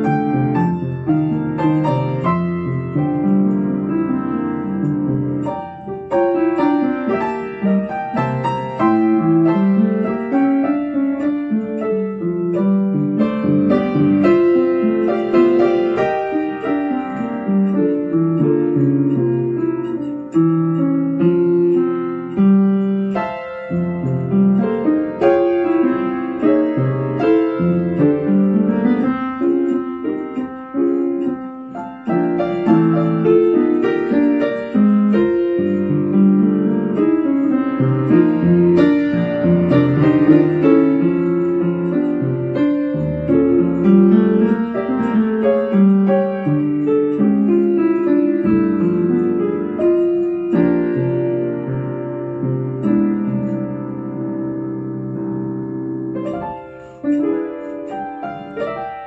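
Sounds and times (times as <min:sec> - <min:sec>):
upright piano playing: 0:00.0 - 0:59.0.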